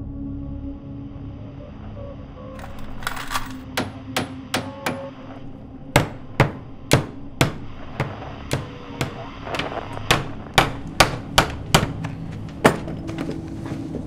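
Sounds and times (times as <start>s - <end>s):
low steady hum: 0.0s - 14.0s
hammer driving nails into wood: 6.0s - 12.8s.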